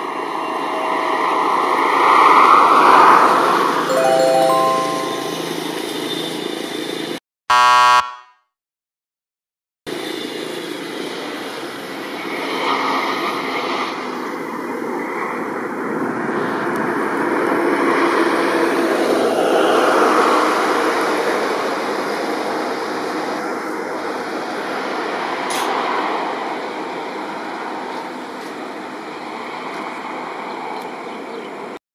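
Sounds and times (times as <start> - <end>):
loud horn-like tone: 7.5 - 8.3.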